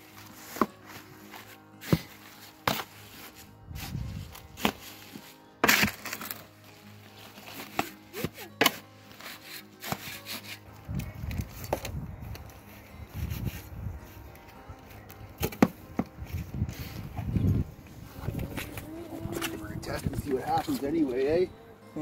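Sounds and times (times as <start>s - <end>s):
spade scraping through wet soil: 0.1s - 10.7s.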